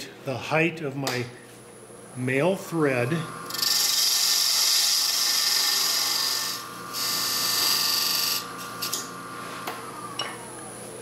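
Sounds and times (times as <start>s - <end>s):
lathe humming: 1.6s - 11.0s
lathe tool scraping wood: 3.0s - 10.2s.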